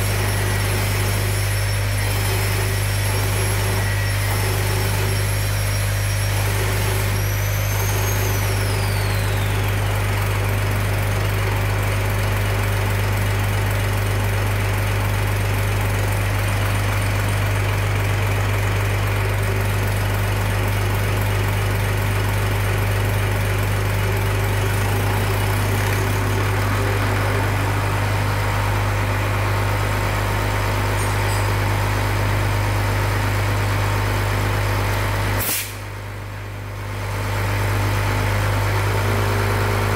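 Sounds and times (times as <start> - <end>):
test bench machine hum: 0.0 - 35.4
high whine falling in pitch: 22.2 - 30.1.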